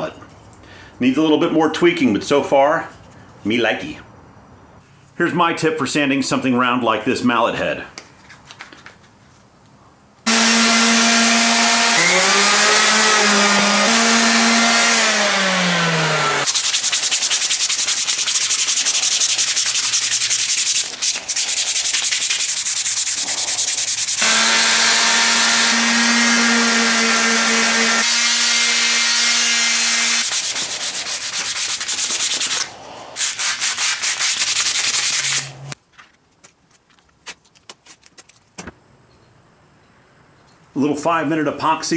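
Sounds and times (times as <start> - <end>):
sandpaper sanding wood: 10.3 - 35.8.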